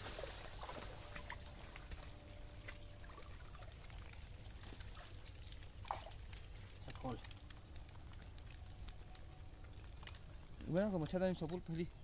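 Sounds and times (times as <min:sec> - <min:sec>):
small splashes: 0:00.0 - 0:08.5
water trickling and dripping: 0:00.0 - 0:12.0.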